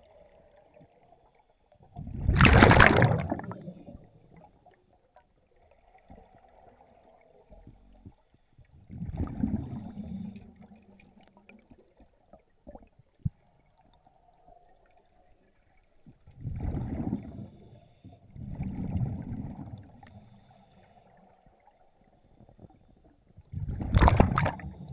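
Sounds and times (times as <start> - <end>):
air bubbling underwater: 2.1 - 4.0, 23.6 - 24.9.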